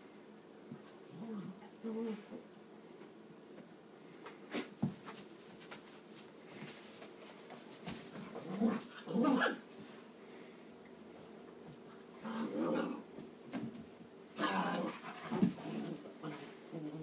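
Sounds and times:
dogs growling: 8.4 - 9.6, 12.2 - 13.1, 14.4 - 17.0
dogs whining: 8.4 - 9.6, 14.4 - 17.0.

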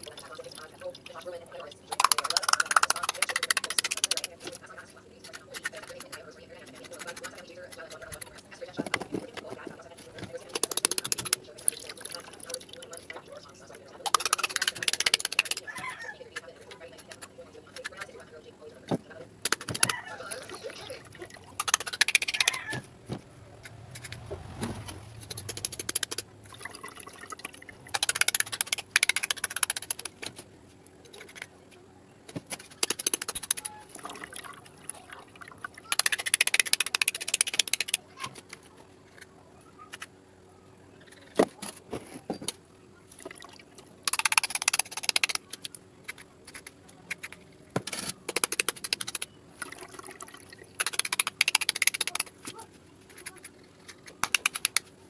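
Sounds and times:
water sloshing and splashing: 26.2 - 28.0, 33.6 - 35.8, 49.5 - 50.8.

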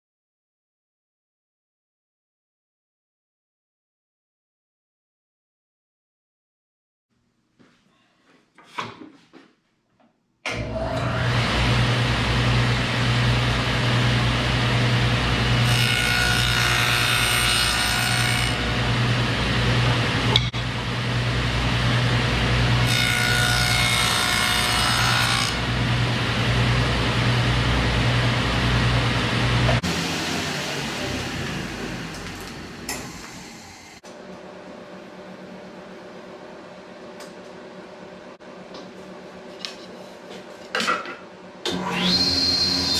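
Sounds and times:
table saw running: 10.5 - 34.0, 41.7 - 42.9
saw blade cutting wood: 15.4 - 18.6, 22.8 - 25.7
saw winding down: 25.4 - 34.0, 41.7 - 42.9.

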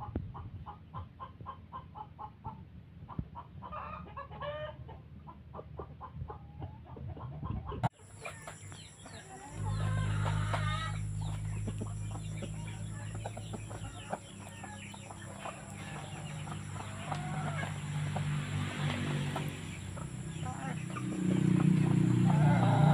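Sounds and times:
chickens clucking: 0.0 - 22.9
low hum: 8.8 - 22.9.

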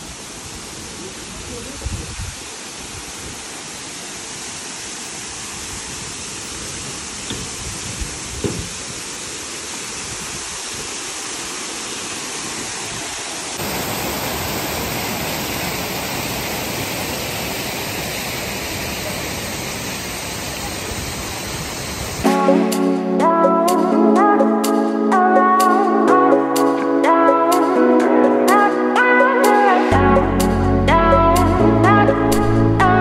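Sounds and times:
rushing mountain water: 0.0 - 22.4.

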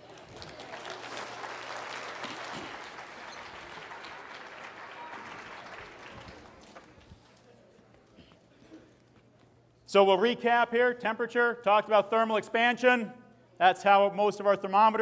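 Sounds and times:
audience applauding: 0.0 - 7.1.

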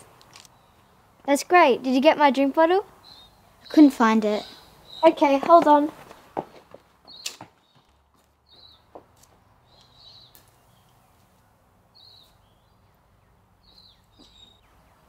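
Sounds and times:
faint high bird chirps: 3.0 - 5.4, 12.0 - 15.0
light running footsteps: 5.1 - 10.6.

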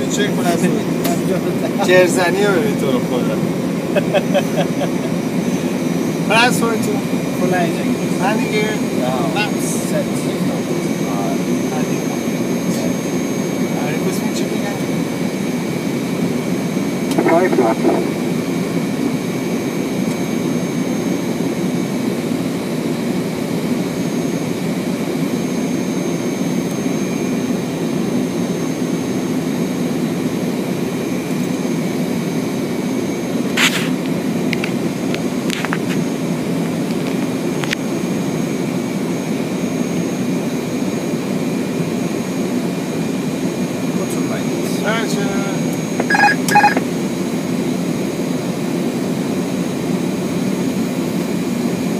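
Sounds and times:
airflow and jet engines: 0.0 - 51.9
thin high whines: 46.0 - 46.8.

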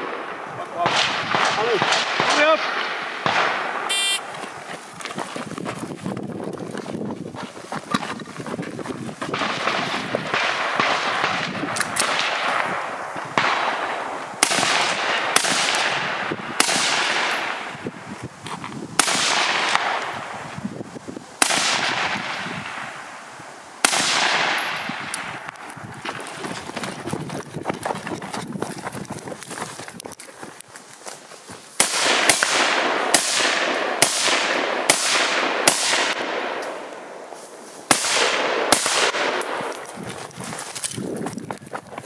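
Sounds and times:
rifle shots with echo: 0.0 - 4.2, 9.3 - 17.9, 19.0 - 20.4, 21.4 - 23.0, 23.8 - 25.5, 31.8 - 37.2, 37.9 - 39.8
shot timer beep: 3.9 - 4.2.

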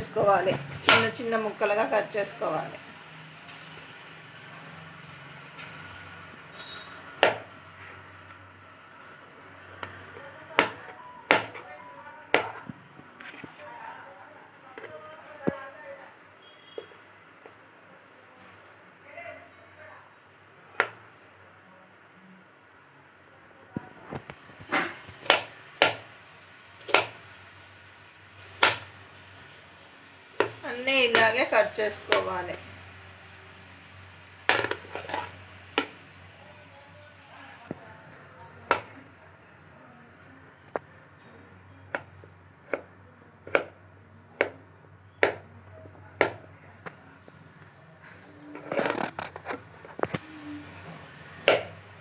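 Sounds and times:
knife chopping on plastic board: 7.2 - 7.5, 9.8 - 11.6, 12.3 - 13.4, 24.6 - 26.1, 26.8 - 27.2, 28.4 - 28.9, 30.4 - 31.4, 32.0 - 32.3, 34.5 - 36.0, 41.9 - 44.6, 45.2 - 45.5, 46.2 - 46.5, 51.4 - 51.8
knife chopping on cutting board: 24.7 - 26.0, 26.8 - 27.2, 28.6 - 28.9.

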